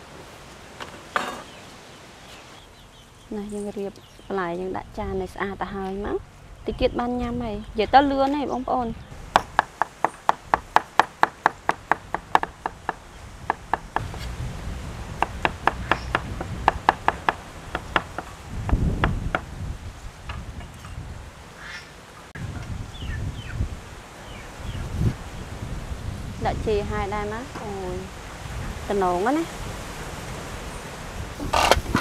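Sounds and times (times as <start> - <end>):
knife chopping cucumber on wood: 9.4 - 14.2.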